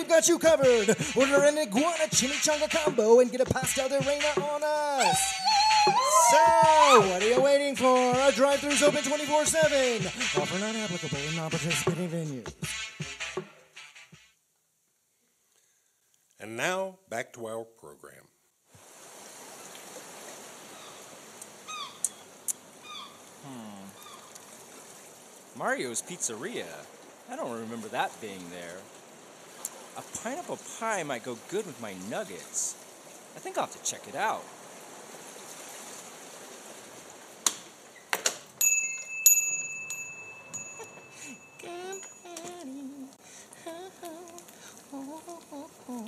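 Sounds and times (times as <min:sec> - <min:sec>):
steady hiss: 0:00.0 - 0:05.1, 0:06.0 - 0:12.6, 0:22.4 - 0:38.5, 0:41.1 - 0:46.0
short falling cries: 0:04.9 - 0:07.4
shop door bell ringing: 0:38.6 - 0:42.6.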